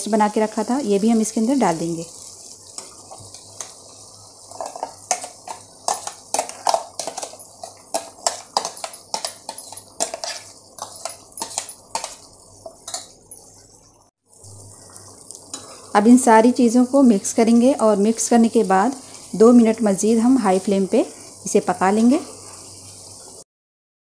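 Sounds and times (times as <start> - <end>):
chicken sizzling in oil: 0.0 - 23.4
spoon scraping glass bowl: 4.6 - 13.4.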